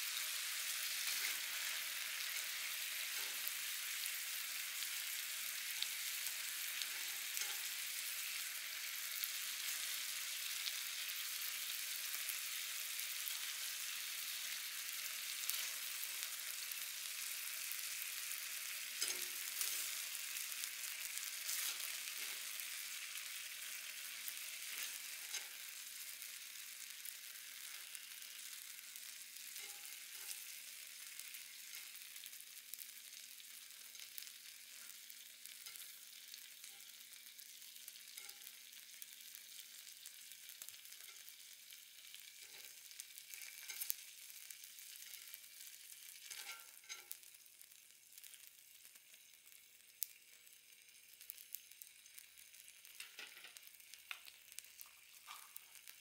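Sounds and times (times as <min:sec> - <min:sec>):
food sizzling in frying pan: 0:00.0 - 0:56.0.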